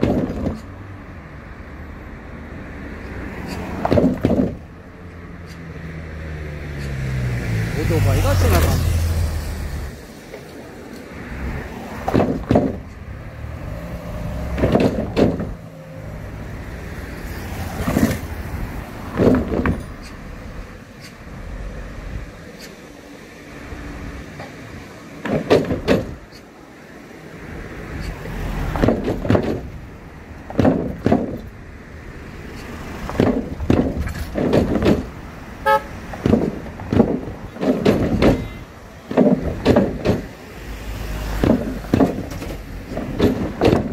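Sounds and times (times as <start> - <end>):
wooden planks clattering under wheels: 0.0 - 0.6, 3.5 - 4.6, 12.0 - 13.0, 14.5 - 15.6, 17.7 - 18.3, 19.0 - 20.2, 25.2 - 26.5, 28.7 - 29.8, 30.4 - 31.5, 33.0 - 35.2, 36.1 - 40.4, 41.3 - 43.9
tyre and engine noise: 0.0 - 43.9.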